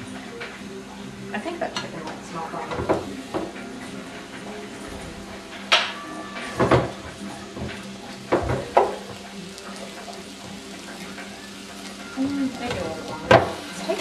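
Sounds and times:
knocks and clatters of kitchen handling: 2.6s - 3.7s, 4.8s - 9.2s.

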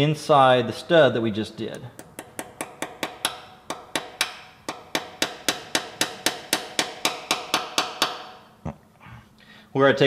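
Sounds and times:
hammer tapping metal: 1.7s - 8.5s.

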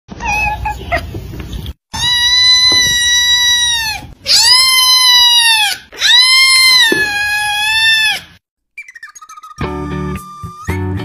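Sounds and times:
kitten meowing: 0.2s - 1.1s, 2.0s - 8.2s.

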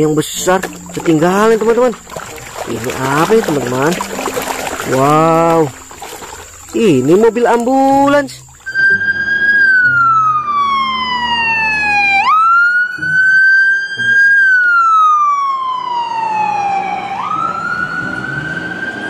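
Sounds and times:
ambulance siren wailing: 8.7s - 19.0s.

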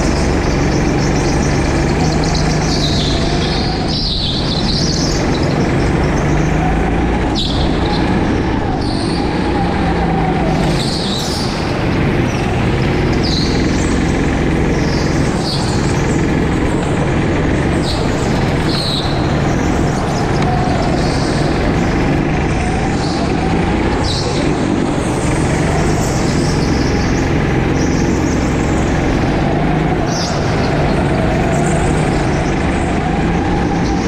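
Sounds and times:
go-kart engine running: 0.0s - 34.0s.

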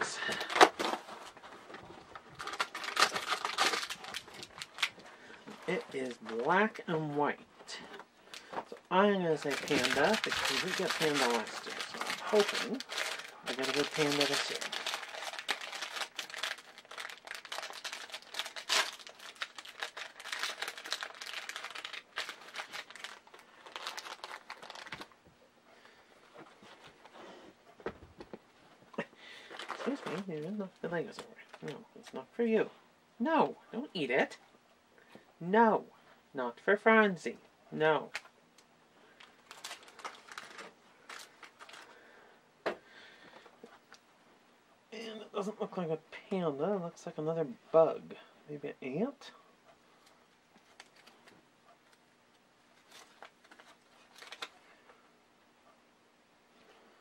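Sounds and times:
wrapper crinkling and tearing: 2.1s - 6.8s, 8.3s - 25.2s, 29.4s - 32.2s, 39.2s - 42.0s, 50.6s - 52.0s, 52.7s - 54.7s.

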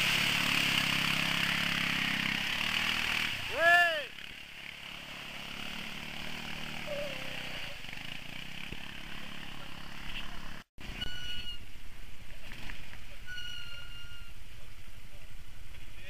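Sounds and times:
quad engines running: 0.0s - 11.2s.

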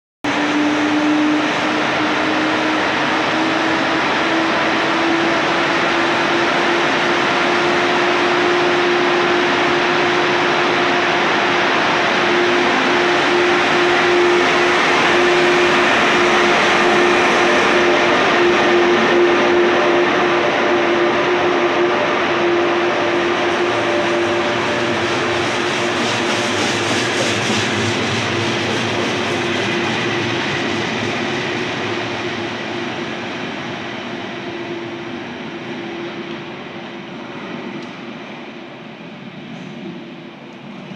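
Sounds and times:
electric locomotive hum: 0.3s - 40.9s
train carriages rolling past: 0.3s - 40.9s.

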